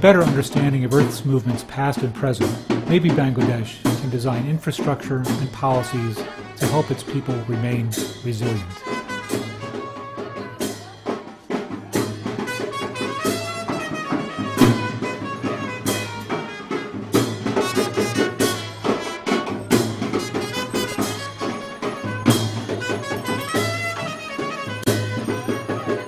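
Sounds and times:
drum and cymbal strikes: 0:00.0 - 0:26.0
brass band playing: 0:05.1 - 0:11.2, 0:11.9 - 0:26.0.

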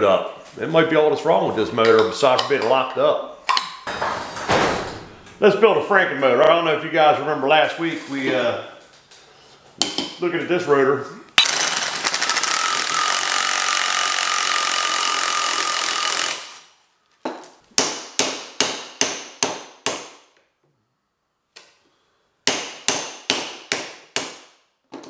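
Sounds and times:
power tool running: 0:11.4 - 0:16.7.

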